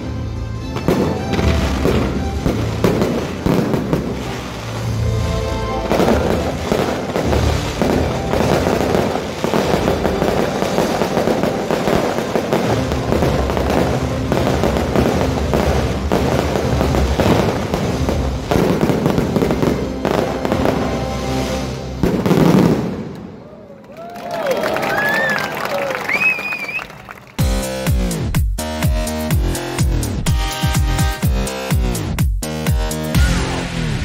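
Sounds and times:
music playing: 0:00.0 - 0:23.0, 0:27.2 - 0:34.0
fireworks crackling and banging: 0:00.7 - 0:27.5.

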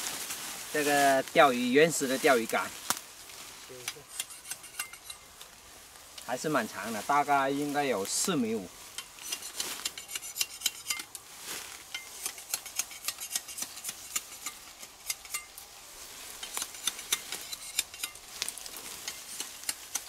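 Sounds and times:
dry leaves crackling: 0:00.0 - 0:04.4, 0:05.0 - 0:20.0
machete chopping bamboo: 0:12.1 - 0:15.4, 0:16.4 - 0:20.0.

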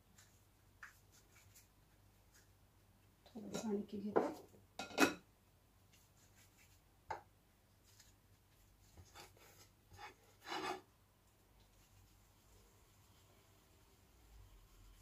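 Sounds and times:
dough worked on steel plate: 0:08.9 - 0:10.9.

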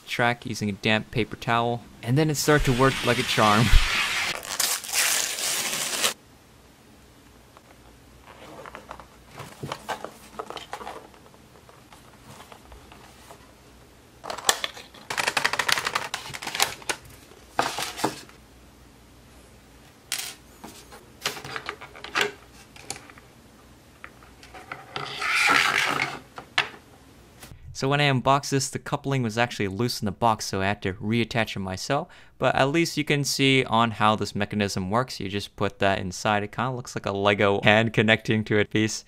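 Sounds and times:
paper wrapping tearing: 0:02.6 - 0:06.2.

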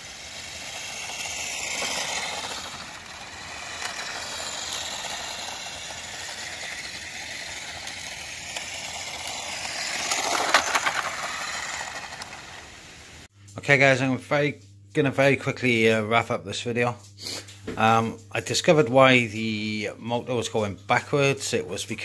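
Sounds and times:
rattly clicking: 0:00.0 - 0:12.6
toy car motor whining: 0:00.0 - 0:13.1.

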